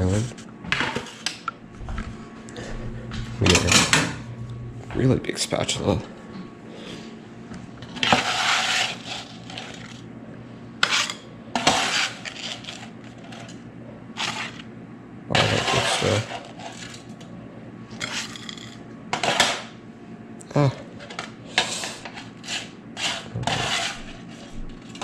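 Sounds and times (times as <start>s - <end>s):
plastic spatula scraping metal sheet: 7.9s - 10.0s, 22.4s - 25.0s.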